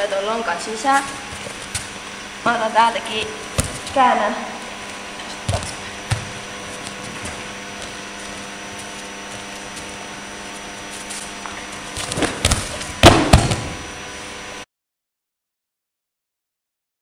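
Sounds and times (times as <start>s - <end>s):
steady background hum: 0.0s - 14.6s
bodies thumping on mats: 3.5s - 4.0s, 5.4s - 8.5s, 11.8s - 13.9s
loud slam on mat: 12.0s - 13.9s.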